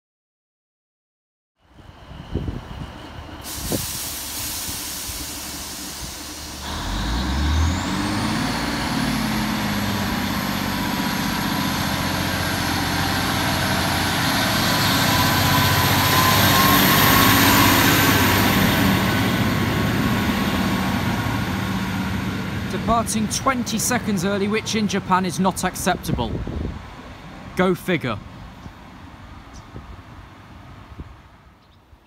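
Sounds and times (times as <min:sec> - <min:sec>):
diesel train engine with whine: 0:01.6 - 0:32.0
brief hiss: 0:03.4 - 0:06.6.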